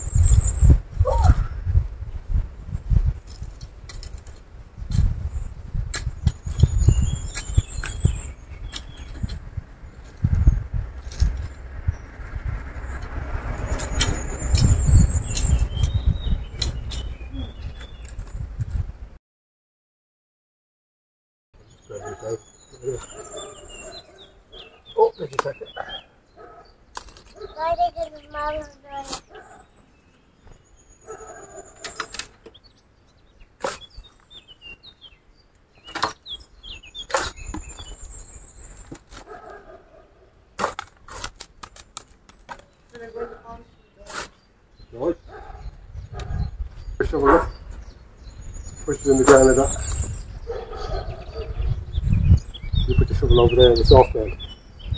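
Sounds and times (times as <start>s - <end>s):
birds chirping: 0.0s - 2.4s, 3.2s - 18.6s, 21.6s - 54.9s
low rumble: 9.4s - 17.6s
digging tool scraping stony soil: 28.9s - 29.4s, 33.6s - 34.4s, 37.0s - 39.4s, 40.6s - 43.1s, 44.0s - 44.5s.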